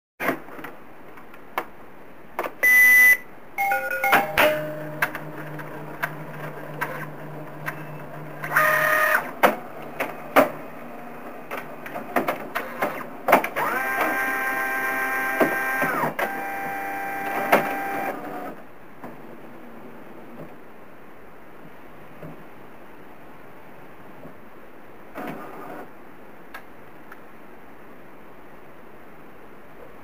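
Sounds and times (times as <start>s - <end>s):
printer motor whine: 8.0s - 9.4s, 12.6s - 18.6s.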